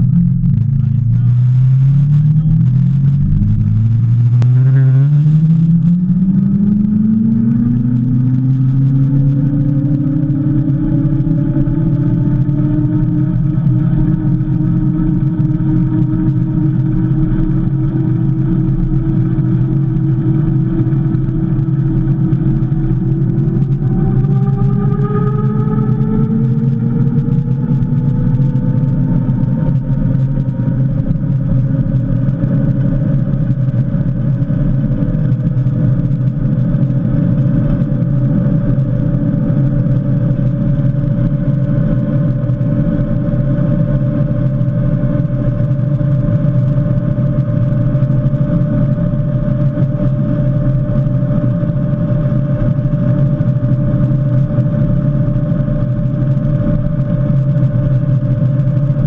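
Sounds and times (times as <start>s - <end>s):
wind and road rush: 0.0s - 59.0s.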